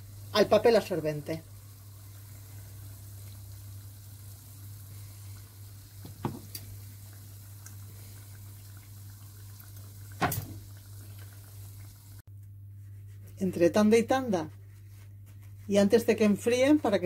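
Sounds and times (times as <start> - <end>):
fritters sizzling in oil: 0.0 - 12.2.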